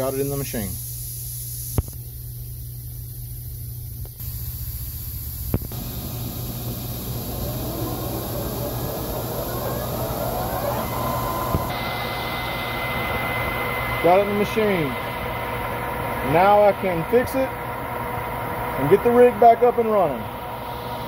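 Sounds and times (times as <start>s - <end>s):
spindle whine rising in pitch: 4.2s - 21.0s
lathe machine hum: 5.7s - 21.0s.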